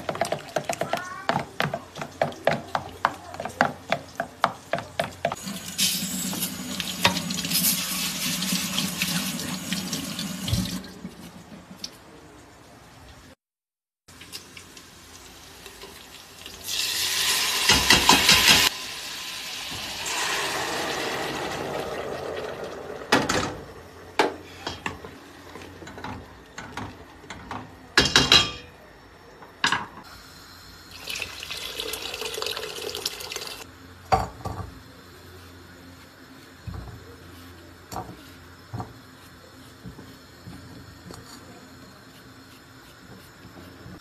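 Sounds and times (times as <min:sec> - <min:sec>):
water running into a pot: 0:05.4 - 0:11.5, 0:14.1 - 0:23.9, 0:30.8 - 0:34.5.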